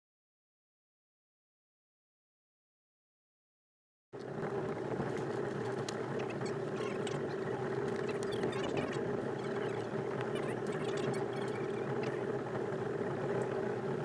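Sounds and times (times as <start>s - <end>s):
outboard motor running: 4.2s - 14.0s.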